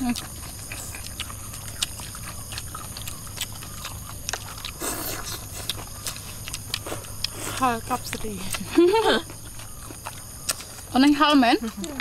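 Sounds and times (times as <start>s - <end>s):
people chewing and lip-smacking: 0.0s - 12.0s
slurp: 4.7s - 5.8s.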